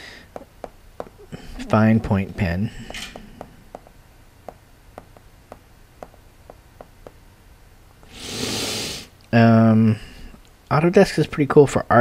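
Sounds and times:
stylus tapping on glass screen: 0:00.3 - 0:01.2, 0:02.9 - 0:07.2.

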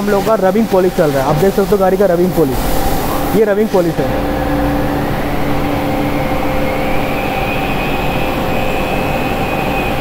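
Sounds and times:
rotary polisher motor whine: 0:04.1 - 0:10.0.

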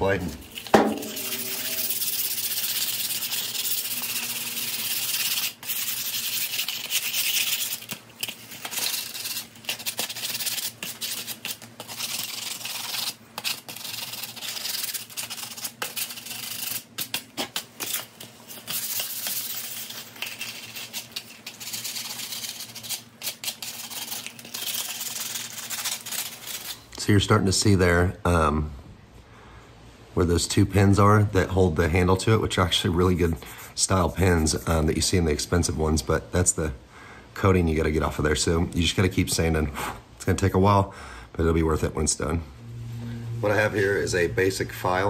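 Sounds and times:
sandpaper scratching wood: 0:00.4 - 0:26.8.

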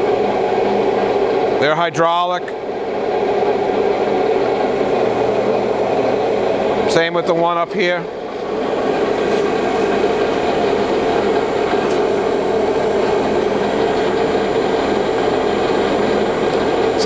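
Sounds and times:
grinder running with strong hum: 0:03.4 - 0:17.0.

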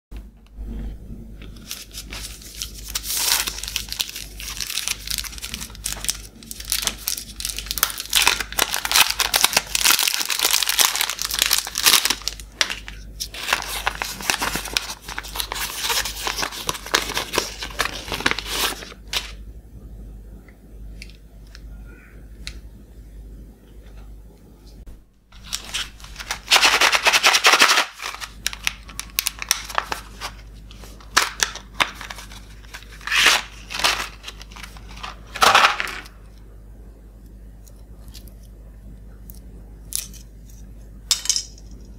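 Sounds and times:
candy wrappers crinkling and tearing: 0:01.6 - 0:19.4, 0:25.3 - 0:36.1.

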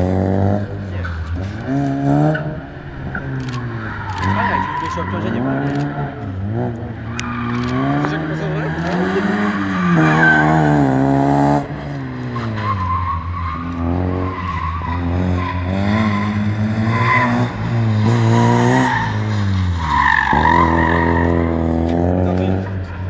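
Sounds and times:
rally car engine revving: 0:00.0 - 0:23.0
tyres squealing: 0:03.2 - 0:06.4.

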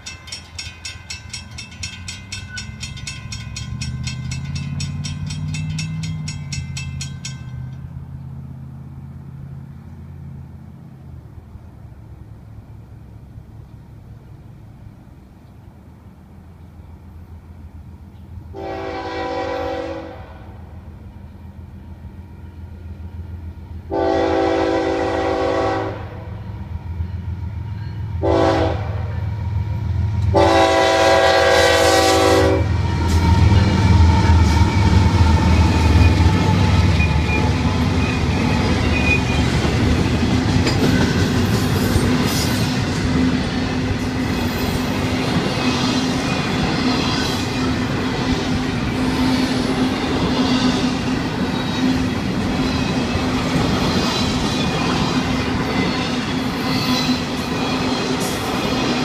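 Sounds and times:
train cars clattering over rails: 0:00.0 - 0:08.3, 0:30.2 - 0:59.0
locomotives passing: 0:00.0 - 0:18.6, 0:28.8 - 0:59.0
locomotive horn blasts: 0:18.5 - 0:20.6, 0:23.9 - 0:26.3, 0:28.2 - 0:29.3, 0:30.3 - 0:33.8.

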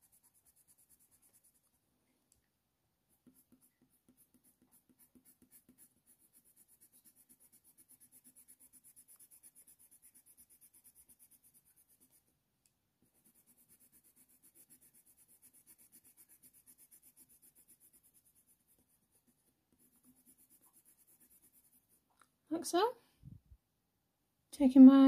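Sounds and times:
pencil scratching on paper: 0:00.0 - 0:01.8, 0:03.1 - 0:12.3, 0:13.0 - 0:22.0.

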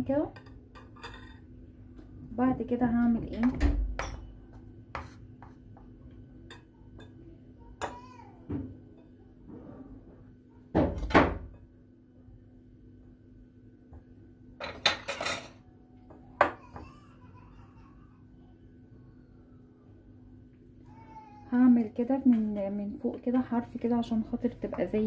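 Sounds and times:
kitchen pans and utensils clattering: 0:00.3 - 0:01.5, 0:14.6 - 0:15.6.

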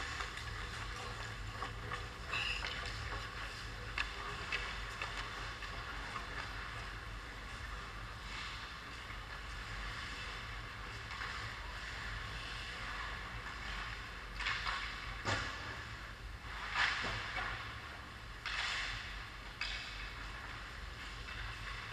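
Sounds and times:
skates scraping on ice: 0:00.0 - 0:15.1.

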